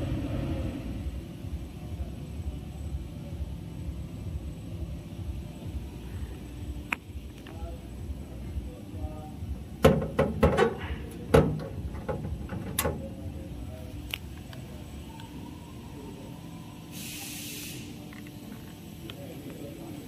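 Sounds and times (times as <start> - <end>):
low factory hum: 0.0 - 20.0
metal cabinet door shutting and latching: 9.8 - 13.1
short hiss: 16.9 - 18.0.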